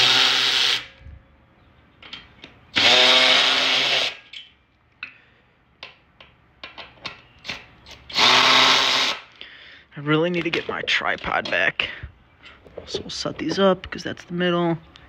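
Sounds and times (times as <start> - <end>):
electric ratchet running: 0.0 - 0.9, 2.7 - 4.3, 8.1 - 9.3.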